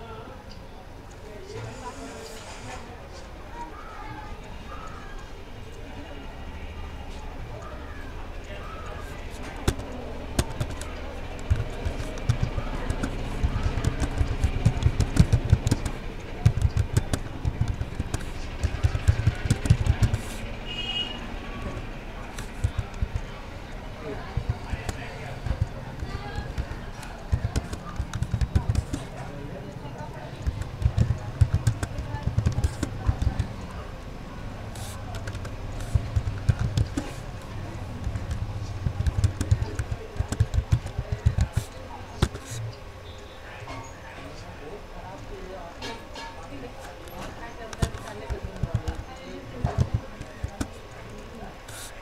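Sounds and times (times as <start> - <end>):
steady low hum: 4.8 - 43.4
keyboard typing: 7.6 - 33.9, 34.6 - 42.8, 46.8 - 52.0.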